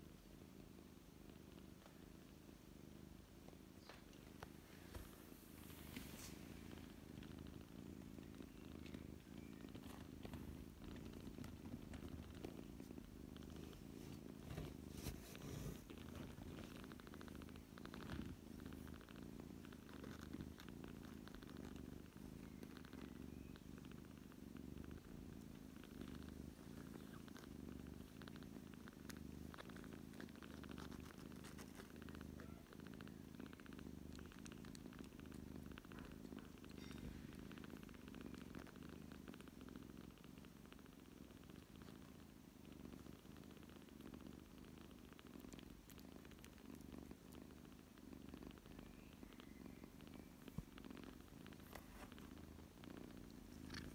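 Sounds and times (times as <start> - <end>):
cats purring: 0.0 - 53.9.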